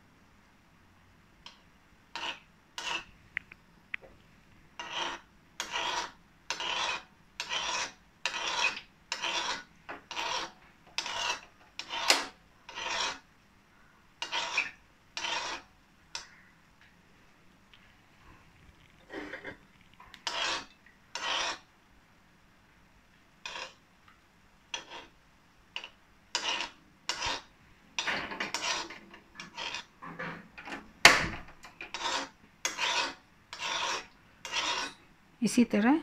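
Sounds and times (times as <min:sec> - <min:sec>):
spoon scraping metal pan: 0:01.5 - 0:03.1, 0:04.8 - 0:13.2, 0:14.2 - 0:16.4, 0:19.1 - 0:21.7, 0:23.4 - 0:23.8, 0:24.7 - 0:30.8, 0:31.4 - 0:35.0.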